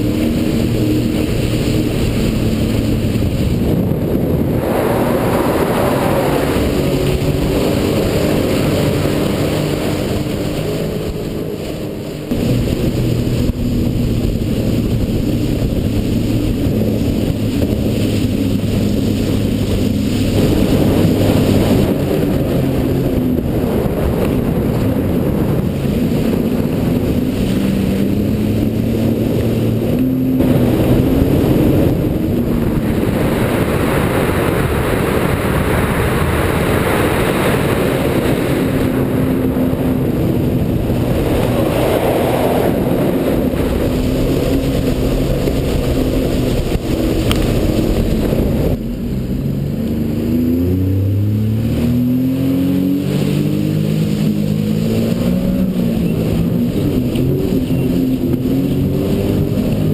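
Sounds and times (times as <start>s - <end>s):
personal watercraft engine: 0.0s - 59.9s
rushing water and wind: 0.0s - 59.9s.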